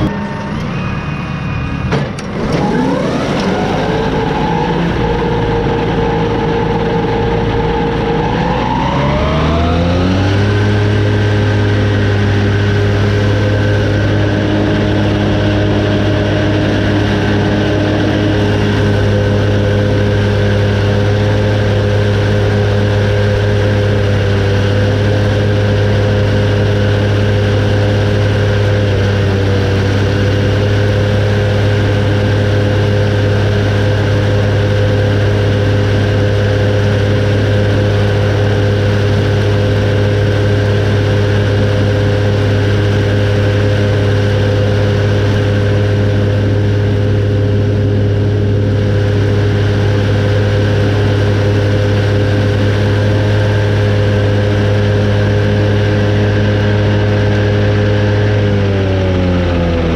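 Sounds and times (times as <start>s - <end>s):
mower whine: 0.0s - 59.9s
tractor engine drone: 0.0s - 59.9s.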